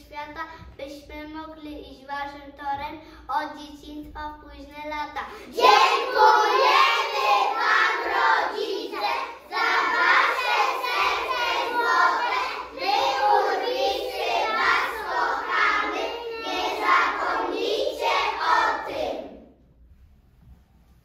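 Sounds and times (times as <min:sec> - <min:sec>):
children singing in unison: 0:05.4 - 0:19.5.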